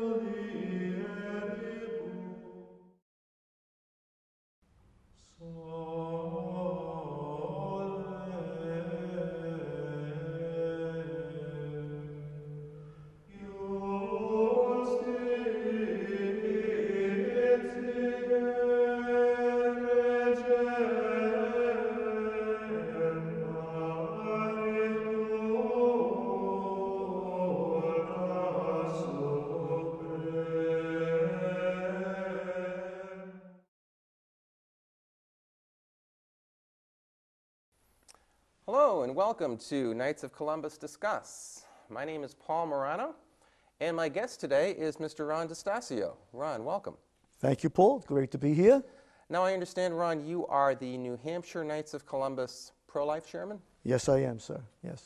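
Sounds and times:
solemn choral chant: 0:00.0 - 0:02.8, 0:05.4 - 0:33.7.

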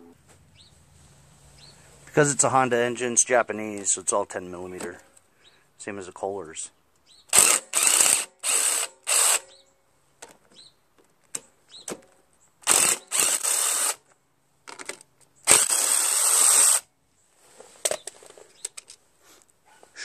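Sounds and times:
power driver spinning: 0:12.6 - 0:14.0.

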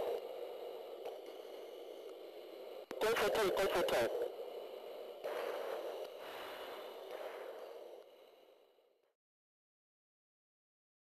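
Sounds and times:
radio channel hiss: 0:00.0 - 0:09.0
faint steady whine: 0:00.0 - 0:09.2.

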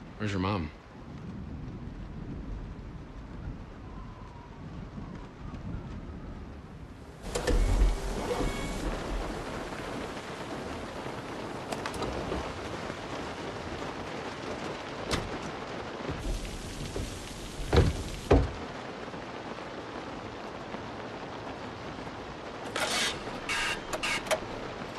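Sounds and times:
heavy rain pouring: 0:00.0 - 0:24.9
thunder rumble: 0:00.9 - 0:22.6
loud thuds: 0:15.1 - 0:18.7.

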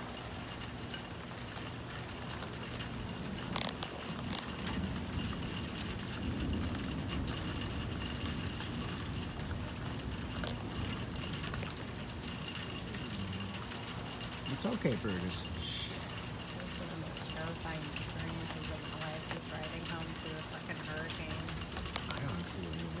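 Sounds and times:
car engine and road noise: 0:09.2 - 0:18.6.

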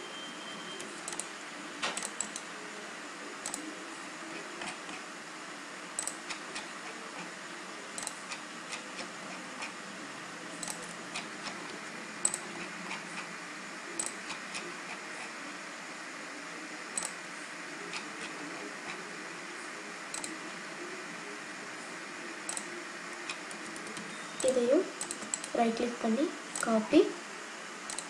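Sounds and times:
computer mouse clicking: 0:00.9 - 0:02.5, 0:03.4 - 0:03.7, 0:06.0 - 0:06.7, 0:08.0 - 0:09.8, 0:10.6 - 0:13.0, 0:14.0 - 0:14.7, 0:17.0 - 0:17.2, 0:20.1 - 0:20.4, 0:22.5 - 0:22.7, 0:23.3 - 0:25.6.

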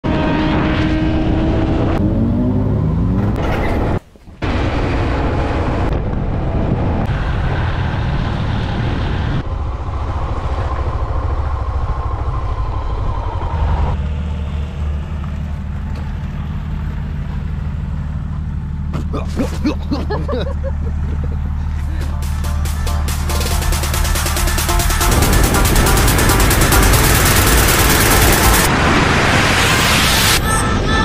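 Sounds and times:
motorcycle accelerating: 0:00.0 - 0:03.5, 0:04.4 - 0:19.0, 0:20.1 - 0:30.4
motorcycle engines running: 0:09.4 - 0:28.7.

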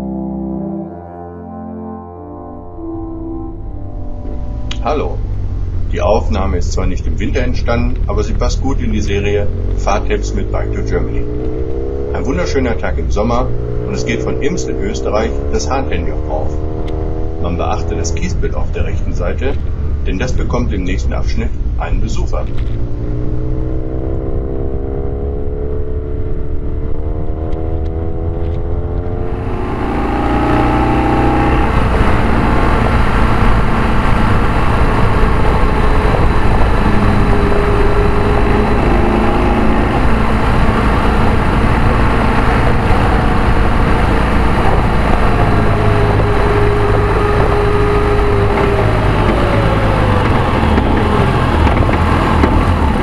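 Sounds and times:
motorcycle engine revving: 0:02.8 - 0:53.0
wind rush over microphone: 0:29.2 - 0:53.0.

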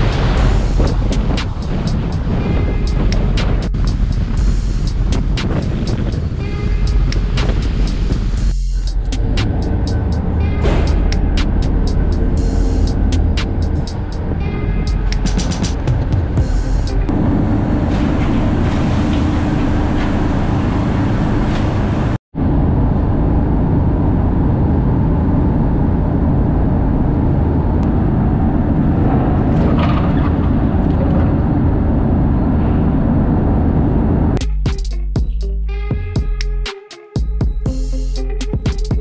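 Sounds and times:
ferry engines rumbling: 0:00.0 - 0:39.0.

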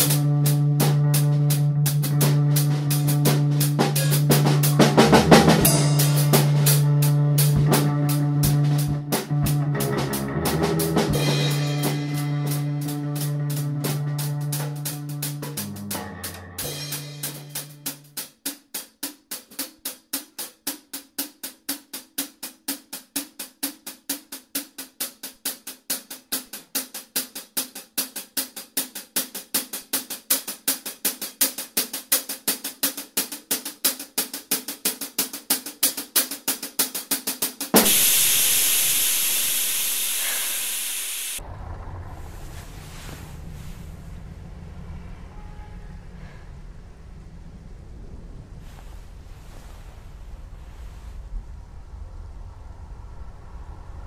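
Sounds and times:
held low note: 0:00.0 - 0:18.1, 0:37.8 - 0:48.6
drum kit beat with hi-hat: 0:00.0 - 0:41.4
shower spray hissing: 0:37.8 - 0:41.4.

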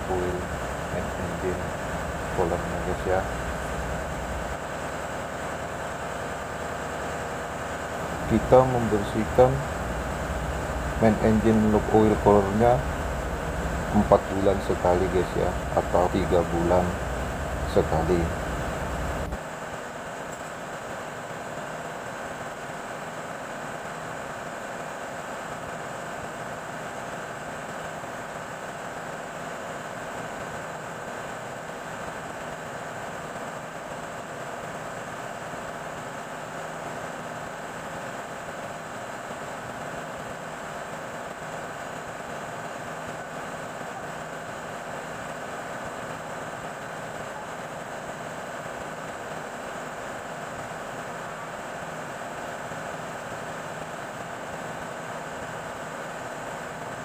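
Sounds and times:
engine-room machinery humming: 0:00.0 - 0:25.7
engine room machinery running: 0:00.0 - 0:57.0.

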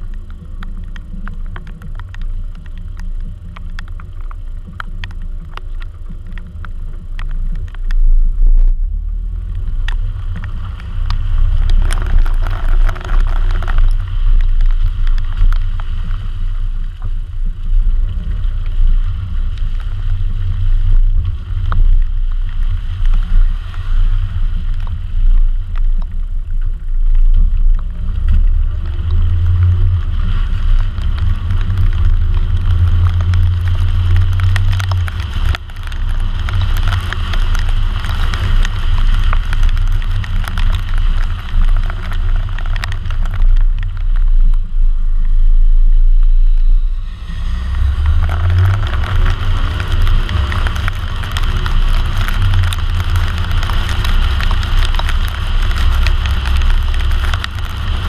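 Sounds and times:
raindrops ticking on camera: 0:00.0 - 0:58.0
tyres hissing on wet road: 0:27.7 - 0:58.0.

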